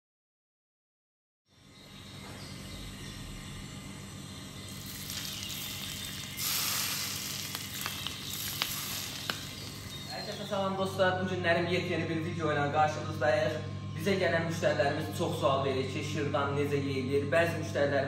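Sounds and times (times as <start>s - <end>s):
hot butter sizzling: 4.6s - 10.6s.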